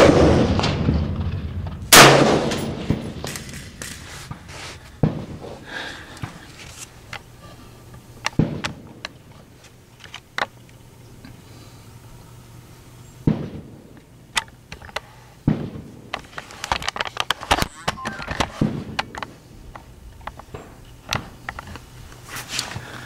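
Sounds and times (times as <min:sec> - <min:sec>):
rifle shots: 0:00.0 - 0:01.1, 0:01.9 - 0:03.7, 0:08.4 - 0:09.0, 0:13.2 - 0:13.8, 0:15.4 - 0:16.1, 0:18.1 - 0:19.2.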